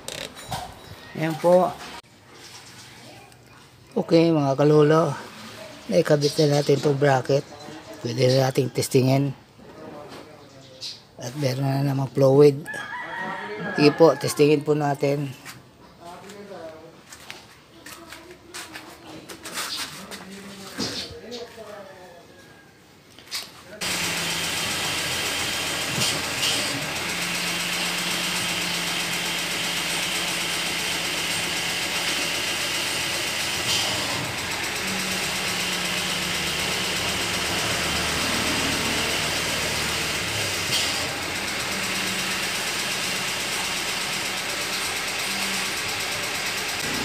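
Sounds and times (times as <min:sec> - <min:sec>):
car engine idling: 0:23.8 - 0:47.0.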